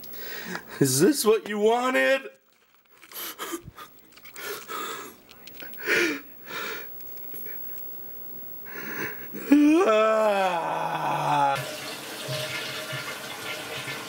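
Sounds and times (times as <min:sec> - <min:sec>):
person breathing wheezy huffs: 0:03.1 - 0:05.2, 0:05.8 - 0:06.9, 0:08.6 - 0:11.6
drawn-out vocal sound sliding pitch: 0:09.5 - 0:11.6.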